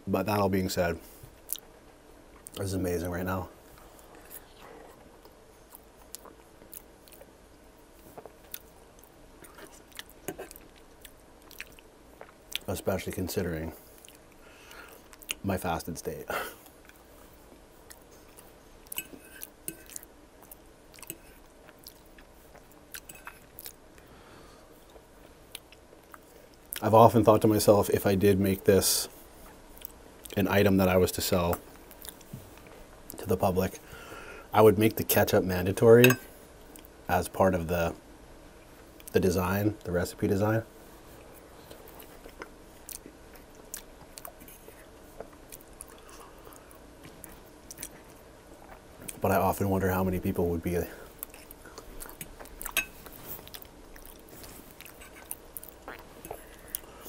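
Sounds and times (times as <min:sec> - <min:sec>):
close chewing of fries: 0:03.8 - 0:12.7, 0:19.3 - 0:24.1, 0:41.1 - 0:49.2, 0:50.9 - 0:57.0.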